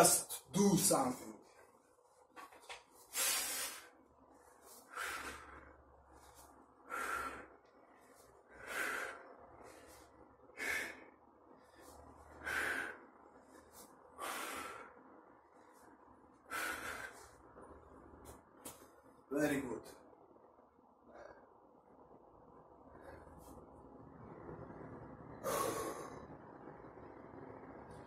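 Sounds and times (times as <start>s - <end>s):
man exhaling forcefully: 25.4s - 26.2s.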